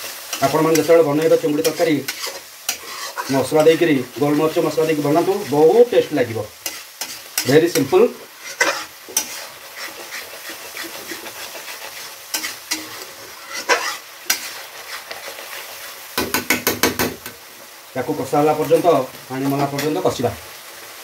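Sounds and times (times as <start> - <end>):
spatula scraping a pan: 0.0 - 17.0
spice paste sizzling in oil: 0.0 - 21.0
knocks on a pan: 16.2 - 17.3.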